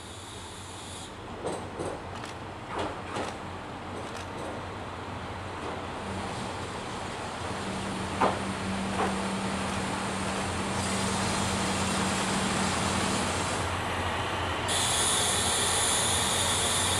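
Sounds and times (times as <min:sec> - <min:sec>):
diesel train engine humming: 0:03.5 - 0:16.9
high hiss: 0:10.7 - 0:16.9.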